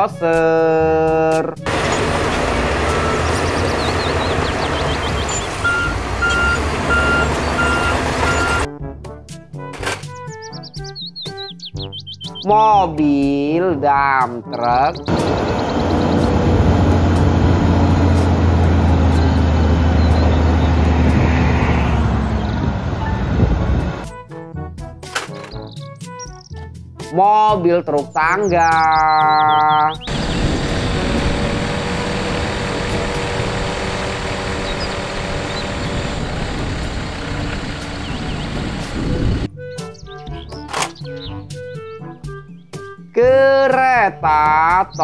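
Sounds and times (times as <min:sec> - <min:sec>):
diesel lorry engine droning: 0:01.6 - 0:08.7, 0:15.0 - 0:24.1, 0:29.9 - 0:39.5
hydraulic ram raising tipper body: 0:30.1 - 0:39.5.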